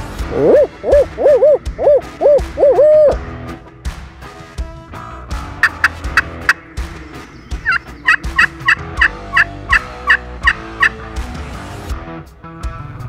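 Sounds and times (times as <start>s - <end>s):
turkey call yelping: 0.2s - 3.2s, 5.6s - 6.6s, 7.6s - 11.0s.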